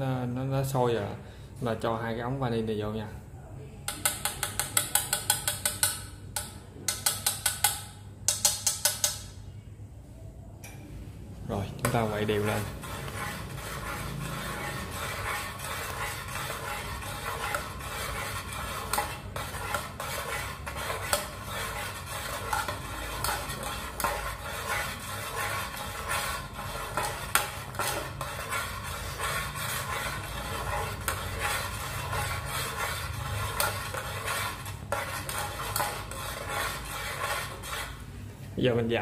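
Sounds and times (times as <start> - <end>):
metal spoon scraping a pot: 3.9 - 9.5, 11.8 - 38.1
gas burner rumble: 11.5 - 38.1.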